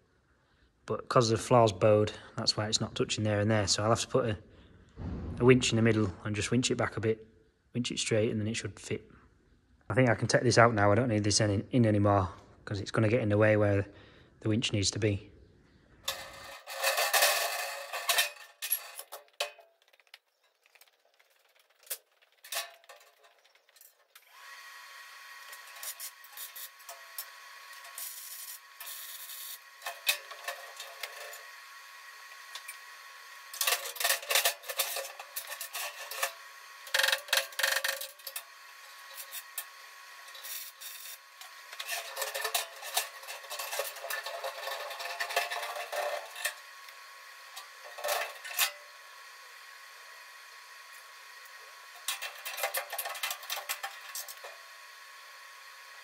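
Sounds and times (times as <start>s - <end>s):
metal scraping and rubbing: 16.0s - 24.3s, 25.2s - 49.0s, 51.9s - 54.6s
machine hum: 16.0s - 56.0s.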